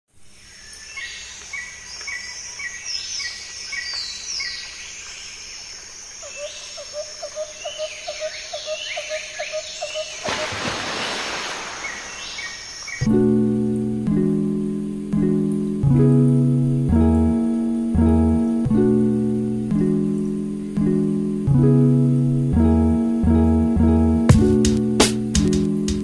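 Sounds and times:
low repeated bird call: 0:06.2 - 0:13.1.

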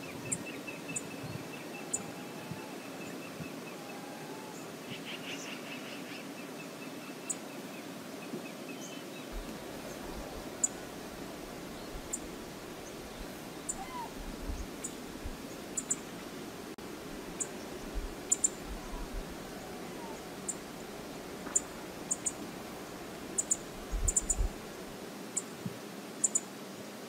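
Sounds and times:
bird trilling: 0:13.7 - 0:14.1
river water rushing: 0:14.8 - 0:23.9.

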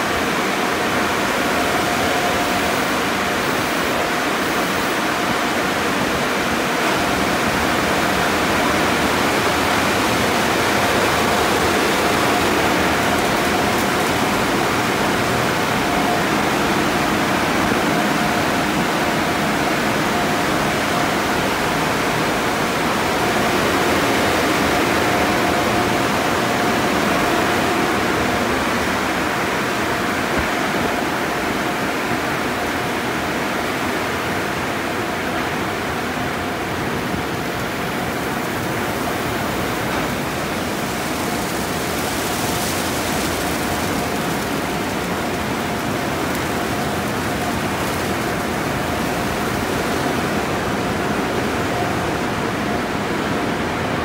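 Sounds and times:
thin machine whine: 0:00.0 - 0:54.0
water spray rushing: 0:37.6 - 0:51.2.

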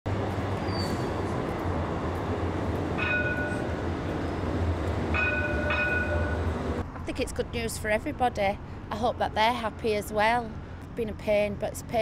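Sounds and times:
train rumbling: 0:00.1 - 0:07.0.

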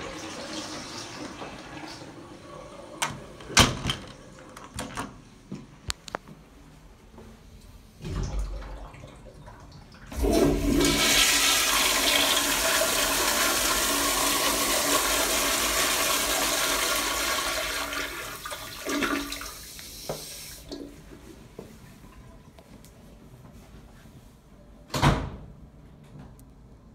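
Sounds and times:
toilet flushing: 0:00.0 - 0:04.4, 0:08.0 - 0:22.5.

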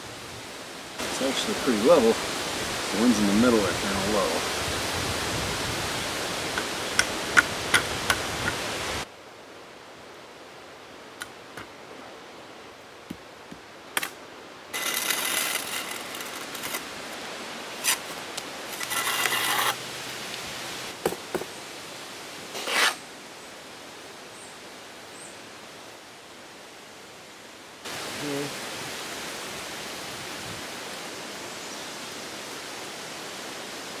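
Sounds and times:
trowel scraping mortar: 0:14.8 - 0:16.9, 0:17.8 - 0:19.8, 0:22.6 - 0:23.0.

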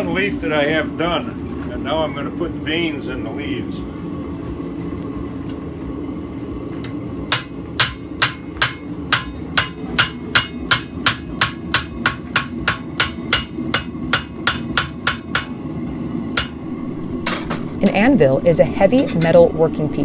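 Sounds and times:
hammer striking metal on anvil: 0:07.3 - 0:15.6, 0:16.3 - 0:17.9
low rumble: 0:16.5 - 0:20.0.

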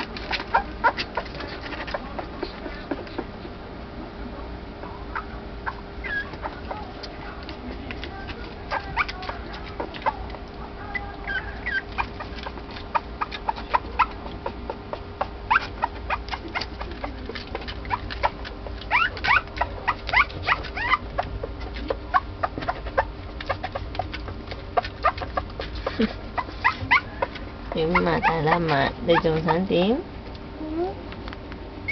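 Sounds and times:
puppy whimpering and squealing: 0:00.4 - 0:02.0, 0:05.1 - 0:07.0, 0:08.7 - 0:14.6, 0:15.5 - 0:17.2, 0:17.8 - 0:24.1, 0:24.8 - 0:29.7.

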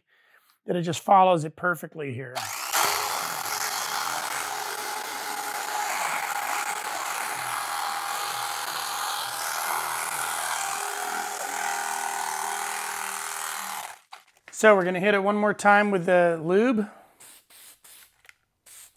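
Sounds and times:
electric knife cutting foam: 0:02.4 - 0:14.2.

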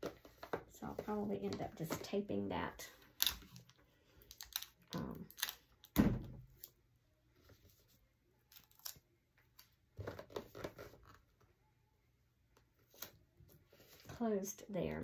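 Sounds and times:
rustling and crinkling: 0:00.0 - 0:11.5.

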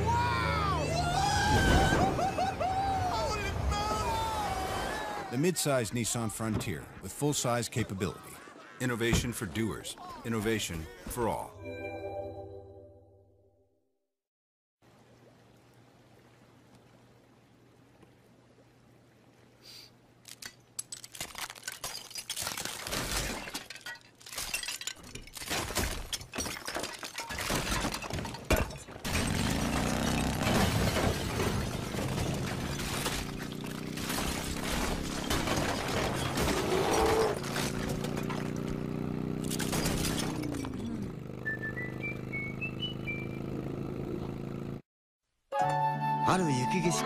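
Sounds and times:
glass shattering: 0:20.3 - 0:38.5, 0:39.4 - 0:41.0
clatter: 0:20.4 - 0:38.8.

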